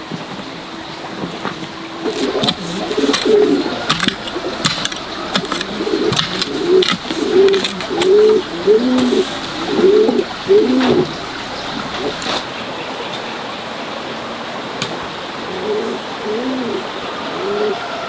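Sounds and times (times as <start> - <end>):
birds cooing: 0.0 - 13.8, 14.4 - 18.0
sharp clicks: 2.0 - 9.2.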